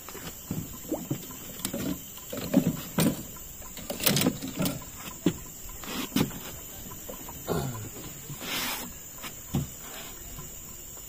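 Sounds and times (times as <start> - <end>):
fishing gear knocks and clatters: 0.3 - 5.5.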